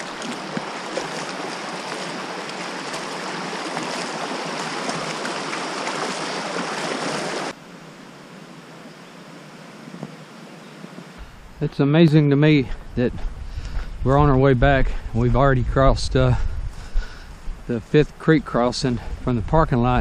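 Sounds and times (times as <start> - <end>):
creek water rushing: 0.0 - 7.7.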